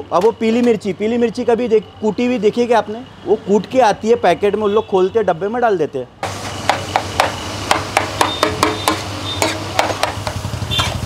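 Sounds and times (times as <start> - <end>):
spatula clanking on steel griddle: 6.7 - 11.0.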